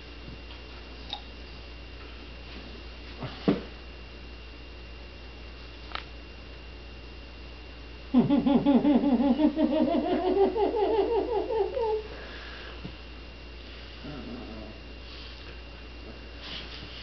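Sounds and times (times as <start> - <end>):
person laughing heartily: 8.1 - 12.1.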